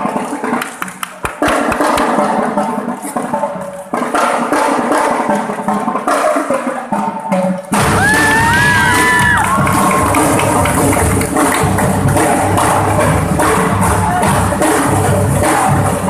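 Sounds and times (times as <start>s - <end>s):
drum and bell corps playing: 7.4s - 16.0s.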